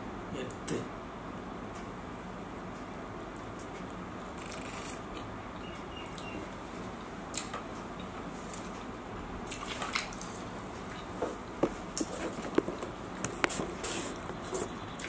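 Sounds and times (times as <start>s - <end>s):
person chewing food: 7.0s - 8.8s.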